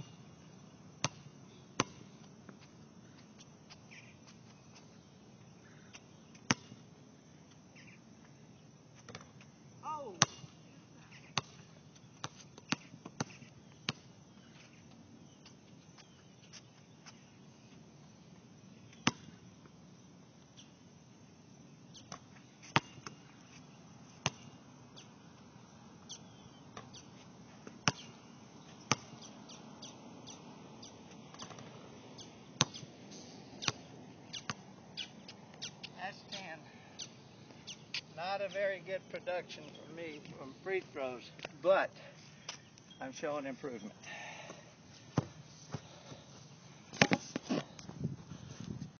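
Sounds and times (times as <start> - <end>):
basketball bouncing on hard court: 6.5 - 6.8, 27.8 - 28.1, 28.9 - 29.2.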